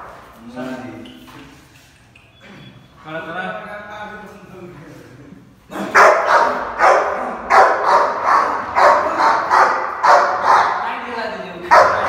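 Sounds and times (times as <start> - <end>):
dog barking angrily: 5.7 - 11.0, 11.7 - 12.0.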